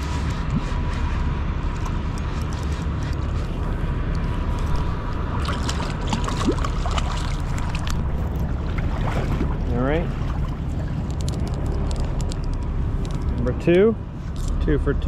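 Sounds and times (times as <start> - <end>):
boat engine drone: 0.0 - 15.0
fish splashing at surface: 5.1 - 10.9.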